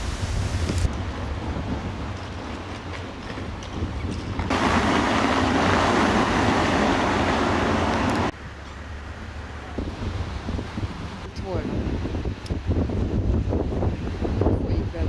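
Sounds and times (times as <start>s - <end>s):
wind rumbling on microphone: 0.0s - 8.4s, 9.4s - 15.0s
car tyres on cobblestones: 0.0s - 11.2s.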